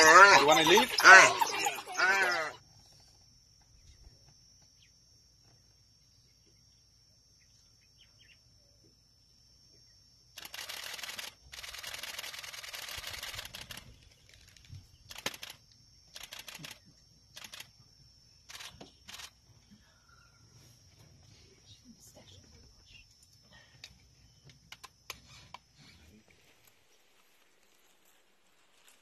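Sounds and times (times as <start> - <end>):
camera shutters clicking: 15.1 - 17.7.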